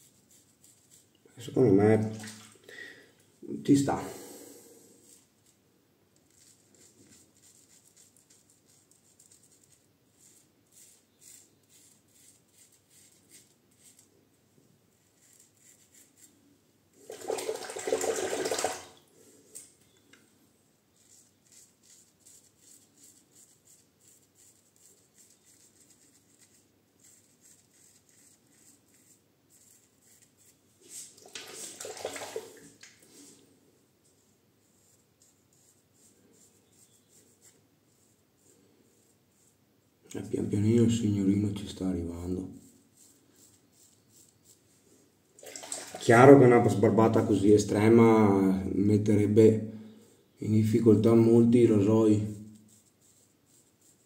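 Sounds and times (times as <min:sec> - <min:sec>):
water running from a tap: 0:17.1 - 0:19.0, 0:31.2 - 0:32.7, 0:45.4 - 0:46.1
razor scraping through beard: 0:35.3 - 0:38.7.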